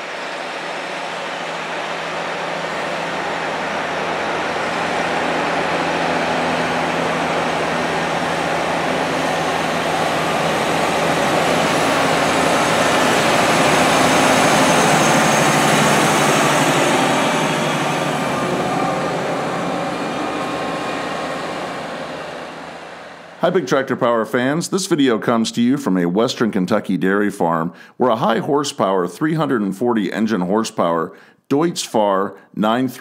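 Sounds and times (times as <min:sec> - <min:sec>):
tractor diesel engine under load: 0:00.0 - 0:24.0.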